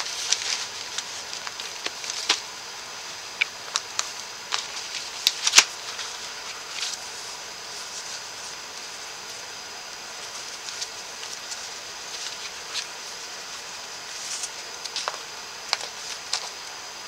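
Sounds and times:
paper rustling and tapping: 0.0s - 2.5s, 14.3s - 16.6s
steady hiss: 0.0s - 17.0s.

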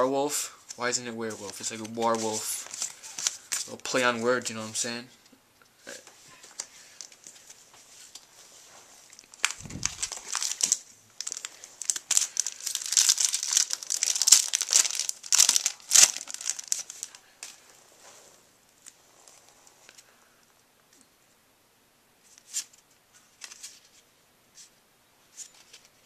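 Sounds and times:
card handling: 1.4s - 3.7s, 9.1s - 17.6s
foil wrapper crinkling and tearing: 9.1s - 17.2s.

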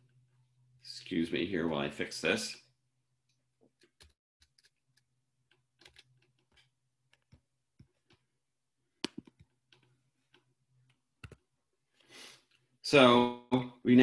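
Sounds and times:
keyboard and mouse clicking: 3.8s - 8.2s, 9.0s - 11.4s.

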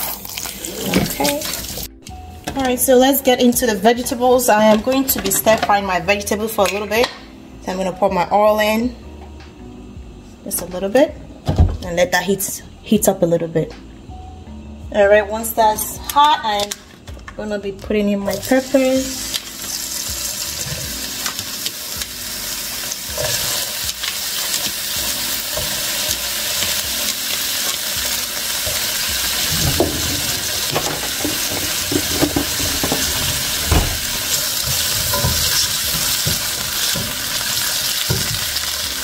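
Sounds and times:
peppers sizzling in hot oil: 0.0s - 2.0s, 18.3s - 39.0s.

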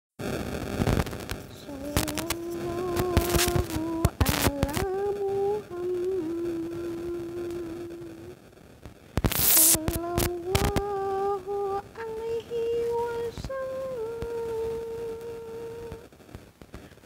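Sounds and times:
loud burst of noise: 0.2s - 17.0s
sharp clicks: 0.8s - 4.9s, 8.8s - 10.9s
woman singing devotional chant: 1.5s - 8.4s, 9.6s - 16.1s.

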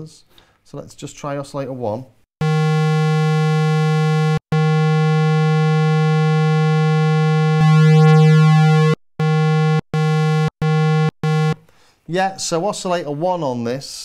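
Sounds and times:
buzzy synthesizer tone: 2.4s - 11.6s.

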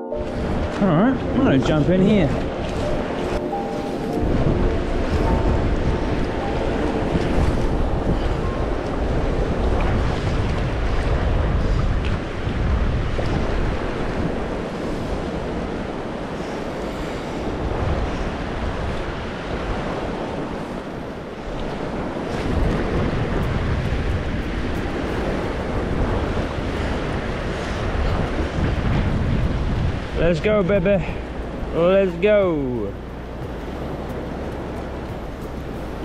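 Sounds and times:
gusty wind buffeting microphone: 0.0s - 36.0s
river water rushing: 0.0s - 36.0s.

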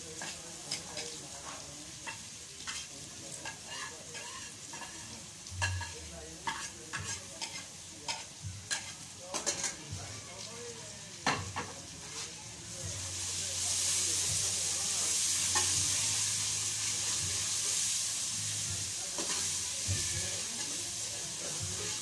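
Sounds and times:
food sizzling in a metal pot: 0.0s - 22.0s.

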